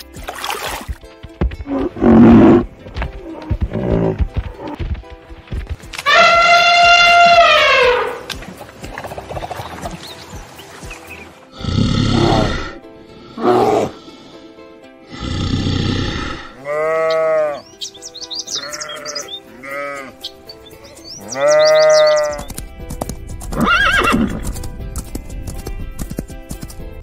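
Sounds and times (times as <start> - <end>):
background music: 0.0 - 27.0
sheep bleating: 6.0 - 8.1, 16.6 - 17.6, 18.5 - 20.2, 21.2 - 22.5
elephant trumpeting: 6.0 - 8.3
horse call: 6.0 - 8.3
small birds chirping: 8.9 - 11.4, 17.0 - 22.7.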